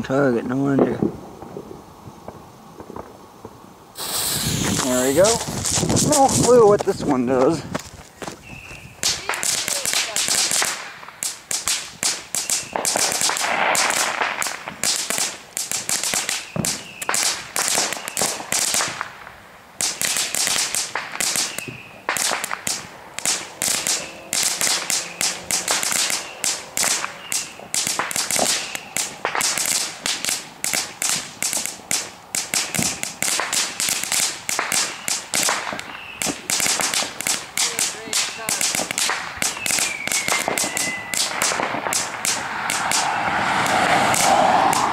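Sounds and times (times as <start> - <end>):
firework crackling and popping: 0.0 - 44.9
firework hiss: 1.3 - 7.6, 8.4 - 44.9.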